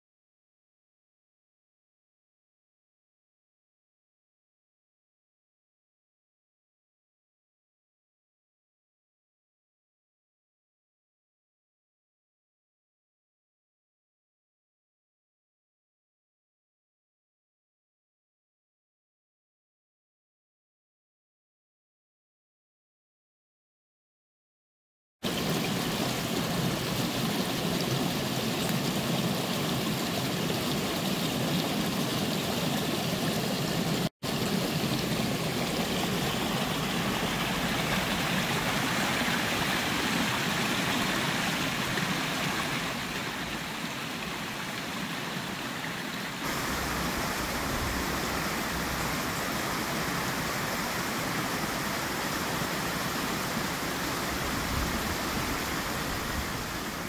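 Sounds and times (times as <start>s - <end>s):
stream splashing over stones: 25.2s - 57.0s.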